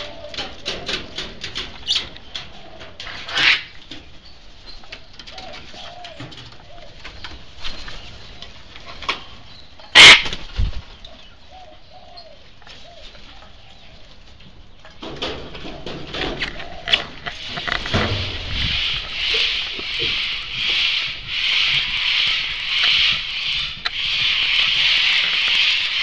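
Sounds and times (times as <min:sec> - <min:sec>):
cockatoos screeching: 0:09.9 - 0:10.4, 0:18.5 - 0:26.0.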